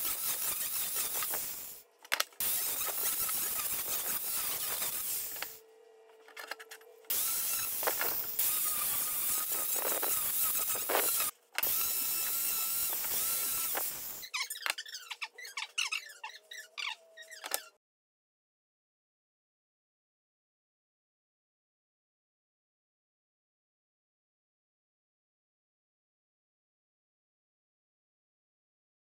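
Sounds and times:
angle grinder grinding wood: 0:00.0 - 0:01.8, 0:02.4 - 0:14.3.

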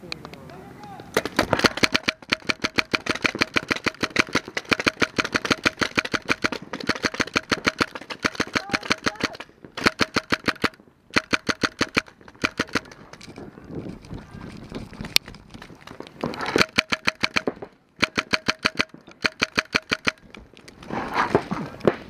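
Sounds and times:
paintball marker firing rapidly: 0:01.2 - 0:13.2, 0:16.3 - 0:20.3.

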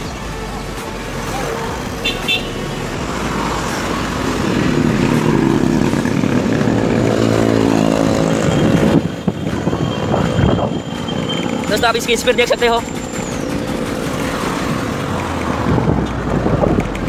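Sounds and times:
steady traffic: 0:00.0 - 0:17.0
vehicle engine passing by: 0:02.6 - 0:09.1
wind noise: 0:03.8 - 0:11.8, 0:13.3 - 0:17.0.

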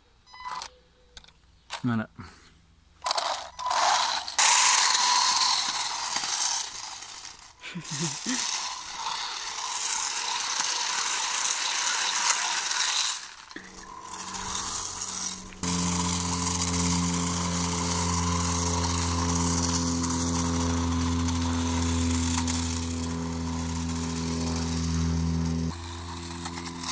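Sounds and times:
toy tank tracks clattering: 0:00.5 - 0:02.0, 0:03.0 - 0:26.9
steady low hum: 0:02.6 - 0:26.9
electric motors: 0:03.0 - 0:26.9.

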